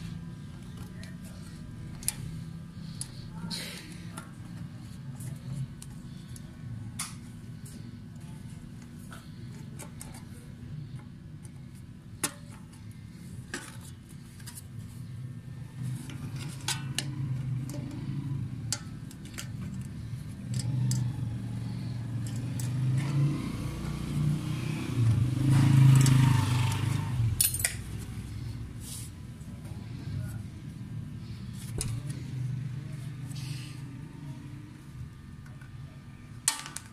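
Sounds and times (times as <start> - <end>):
low engine rumble: 14.1 - 36.4
metallic clicks and clinks: 27.4 - 27.8.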